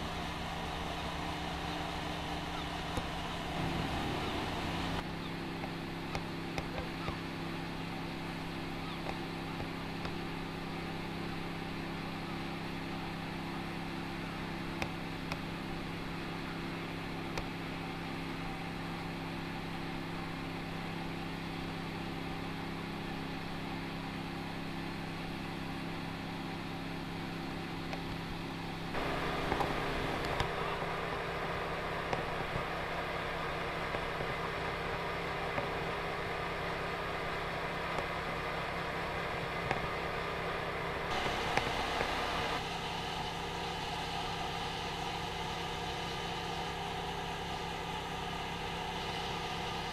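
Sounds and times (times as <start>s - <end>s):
engine running steadily: 0.0s - 49.9s.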